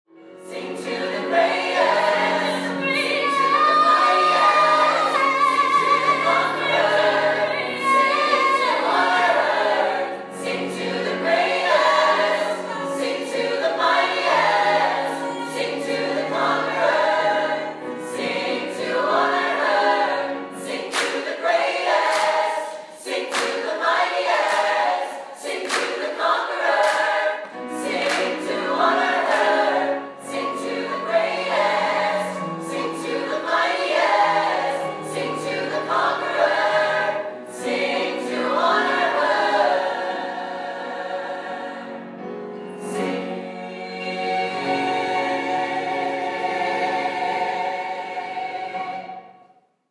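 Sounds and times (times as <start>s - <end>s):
choir singing: 0.2s - 49.6s.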